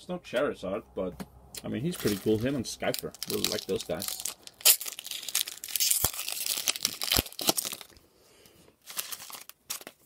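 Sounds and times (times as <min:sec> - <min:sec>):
foil wrapper crinkling and tearing: 0:01.9 - 0:08.0, 0:08.8 - 0:10.0.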